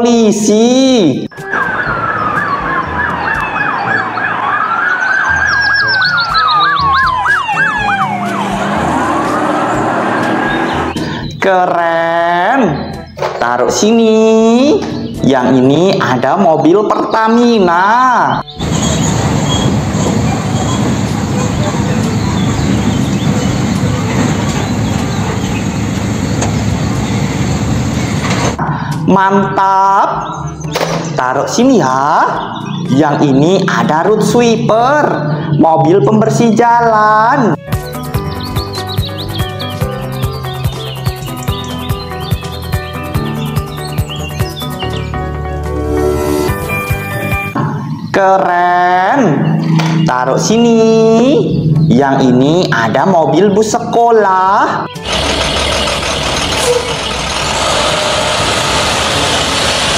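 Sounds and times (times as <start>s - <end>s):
police siren wailing: 1.3s - 11.0s
police siren yelping: 1.3s - 11.0s
toy truck wheels rumbling: 55.0s - 59.9s.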